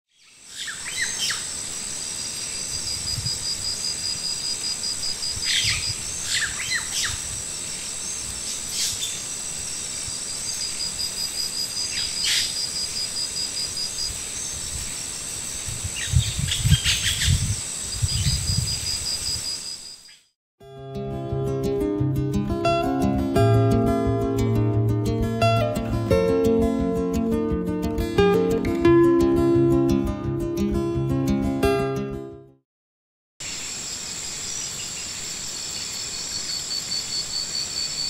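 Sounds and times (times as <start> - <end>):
insects buzzing and chirping: 0.1 - 20.3, 33.4 - 38.0
bird calling: 0.2 - 1.5, 5.4 - 7.2, 11.9 - 12.6.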